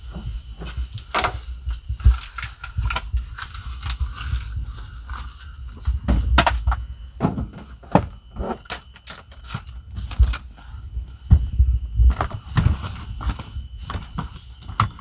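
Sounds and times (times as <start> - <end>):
rustling handling noise: 0.0 - 15.0.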